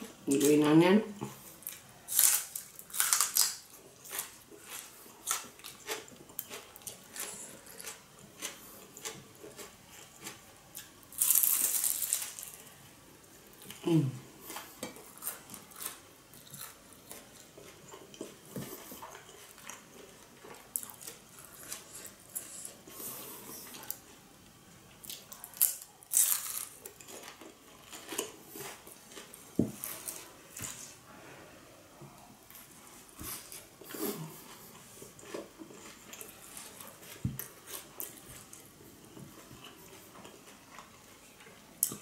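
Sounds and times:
crisp chewing crackles: 1.6 - 12.8, 25.0 - 30.8, 33.3 - 38.7
loud crunching bite: 2.1 - 8.0.

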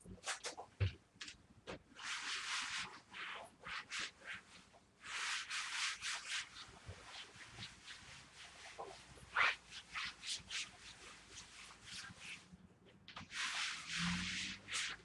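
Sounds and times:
hand rubbing laminate floor: 2.0 - 12.6, 13.2 - 15.0.

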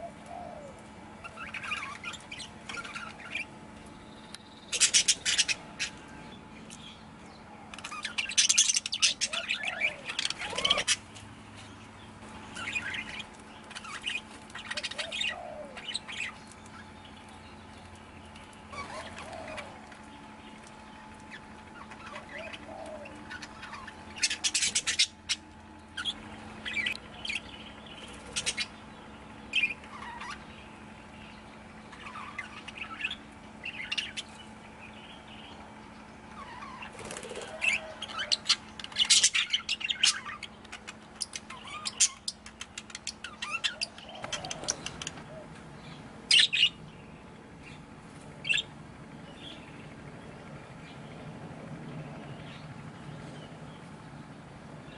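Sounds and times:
budgerigars chirping and chattering: 0.0 - 7.0, 7.7 - 50.0.

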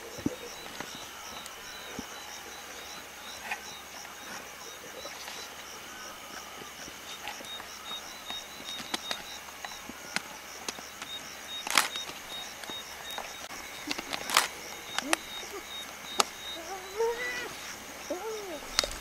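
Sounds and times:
hyenas crunching bone: 7.2 - 17.8, 18.5 - 19.0
high chirping: 11.1 - 19.0.

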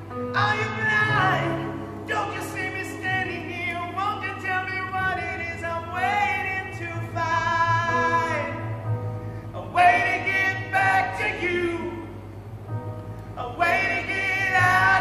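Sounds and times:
male lead singer: 0.3 - 8.6
backing singers harmonies: 9.4 - 12.4, 13.2 - 15.0.

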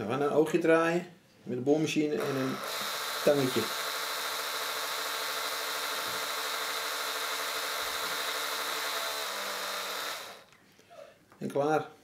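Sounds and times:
electric drill running: 2.2 - 10.5.

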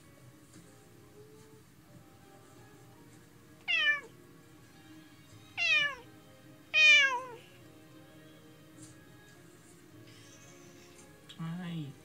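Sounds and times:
cat meowing: 3.6 - 4.2, 5.6 - 6.1, 6.7 - 7.5.

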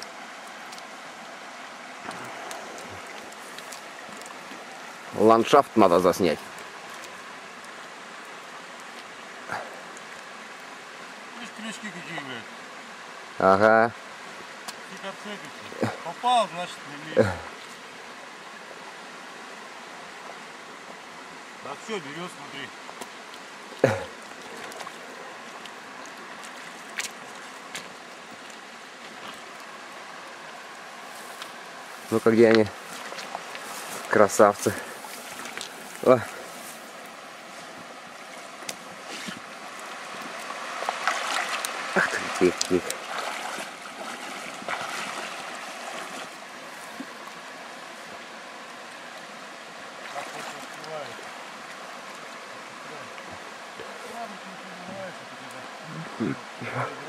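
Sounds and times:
river running over rocks: 0.0 - 57.0.

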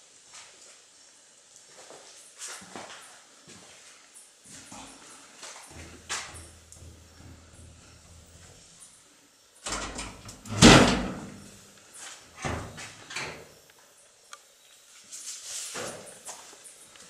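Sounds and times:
metal door moving: 5.7 - 8.6, 9.6 - 11.6, 12.4 - 13.5.

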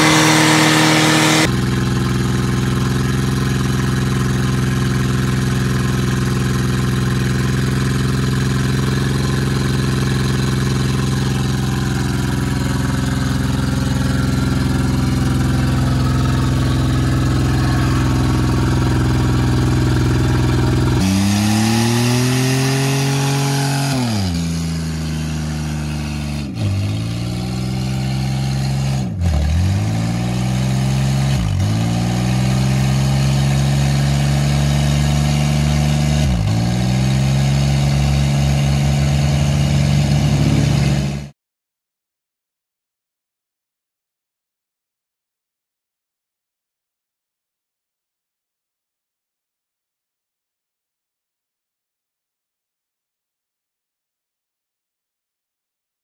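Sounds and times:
pickup engine revving: 0.0 - 1.7, 8.1 - 41.3
minivan engine revving: 0.0 - 41.3.

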